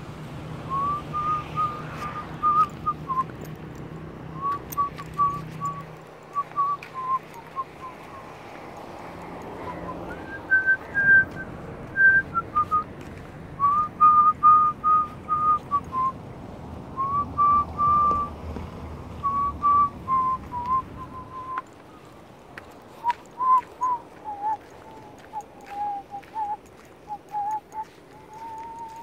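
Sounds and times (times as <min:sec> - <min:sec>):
person whistling a slow tune: 0:00.7 - 0:03.5, 0:04.4 - 0:08.3, 0:09.7 - 0:12.9, 0:13.6 - 0:16.2, 0:17.0 - 0:18.4, 0:19.2 - 0:21.7, 0:23.0 - 0:29.0.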